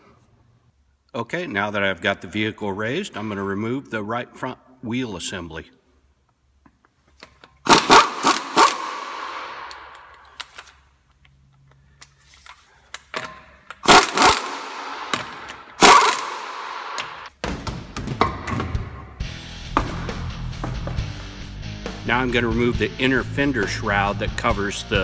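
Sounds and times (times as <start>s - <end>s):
impact wrench rattling bursts: 7.6s - 10.5s, 13.8s - 17.3s.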